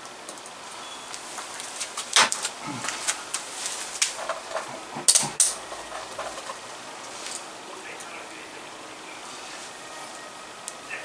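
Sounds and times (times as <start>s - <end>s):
metal clips clicking: 2.1s - 6.6s.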